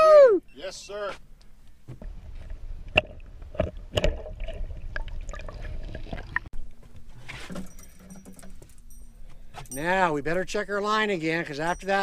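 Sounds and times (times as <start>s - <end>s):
muffled water sloshing and gurgling: 1.9s - 6.5s.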